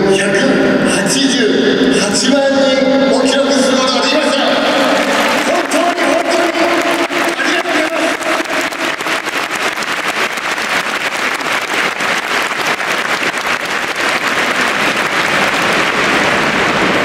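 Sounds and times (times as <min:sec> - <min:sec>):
stadium crowd applauding: 0:04.2 - 0:17.0.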